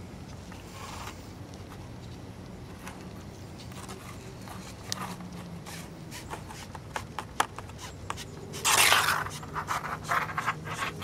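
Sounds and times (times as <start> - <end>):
scrape: 0.6 - 1.3, 3.8 - 7.0, 7.7 - 11.0
gloved hands rubbing cable: 3.6 - 11.0.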